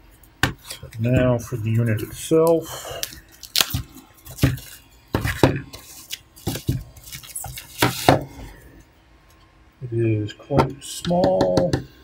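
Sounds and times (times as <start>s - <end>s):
foam packaging crinkling: 0.7s - 8.2s
tape peeling: 2.4s - 8.1s.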